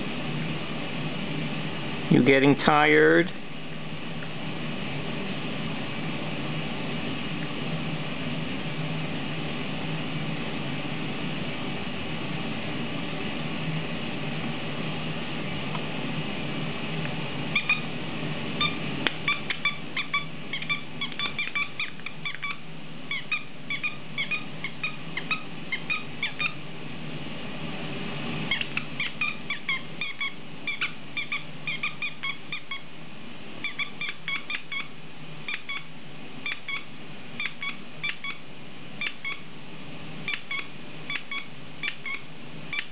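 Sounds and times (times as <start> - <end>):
squeaky toy squeaking: 18.6 - 26.6, 28.5 - 32.8.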